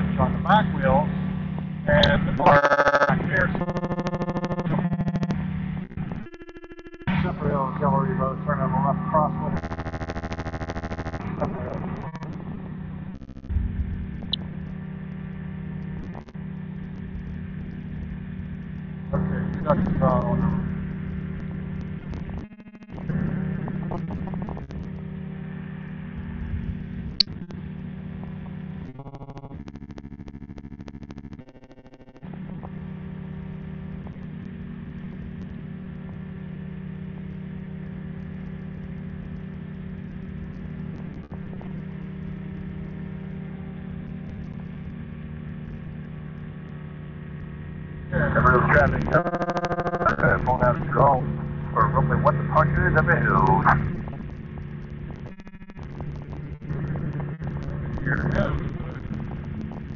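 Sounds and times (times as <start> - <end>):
aircraft engine and propeller drone: 0.0 - 29.5, 31.7 - 59.9.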